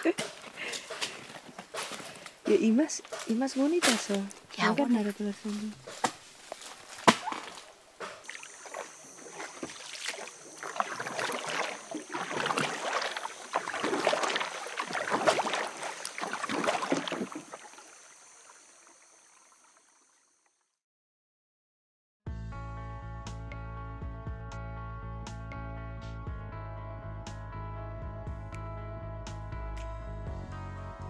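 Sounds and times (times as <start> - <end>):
paddle strokes splashing: 5.8 - 19.5
water lapping against hull: 7.3 - 19.8.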